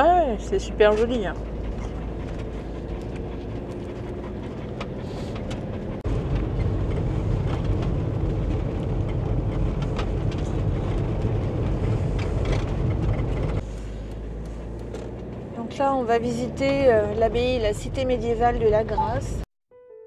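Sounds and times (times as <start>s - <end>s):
vehicle engine and road noise: 0.0s - 19.5s.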